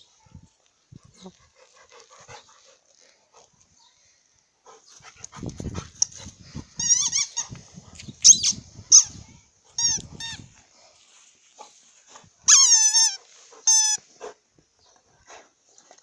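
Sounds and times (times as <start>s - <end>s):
squeak toy squeaking: 6.8s - 7.4s, 8.2s - 9.1s, 9.8s - 10.4s, 12.5s - 14.0s.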